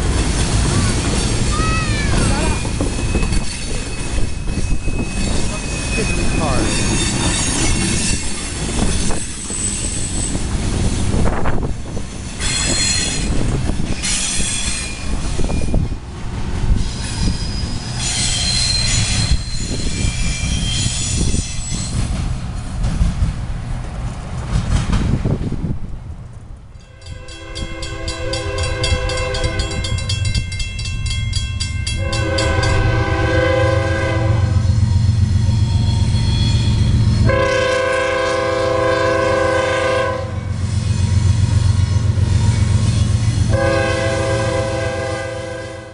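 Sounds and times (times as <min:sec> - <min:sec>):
freight train rumbling past: 0:00.0 - 0:45.9
steel wheels squealing: 0:01.1 - 0:16.0, 0:16.7 - 0:22.2, 0:34.6 - 0:37.4, 0:40.5 - 0:43.5
train horn blasts: 0:26.8 - 0:30.1, 0:31.9 - 0:34.8, 0:37.2 - 0:40.6, 0:43.5 - 0:45.9.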